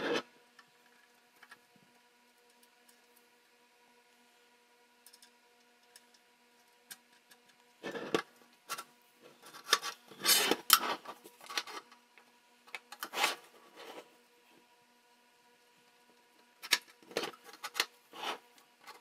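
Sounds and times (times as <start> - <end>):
rubbing and scraping strokes: 9.2 - 11.3, 13.0 - 14.1, 18.1 - 19.0.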